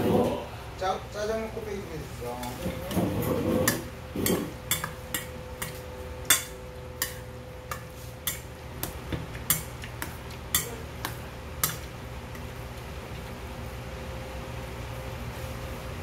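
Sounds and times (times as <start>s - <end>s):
chopsticks clinking on metal bowl: 10.5s - 11.9s.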